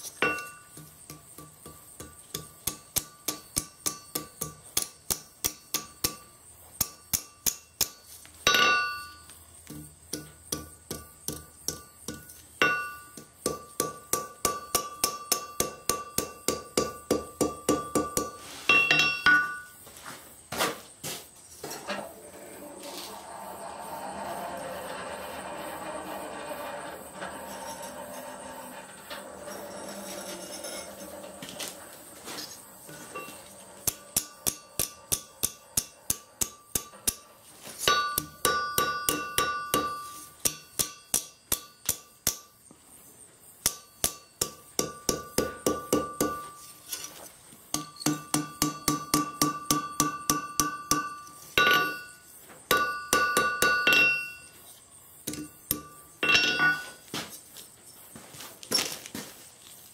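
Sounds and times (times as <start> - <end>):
hammer striking steel on anvil: 0.2 - 19.8, 33.2 - 42.5, 43.6 - 46.6, 47.7 - 54.5, 55.3 - 57.0.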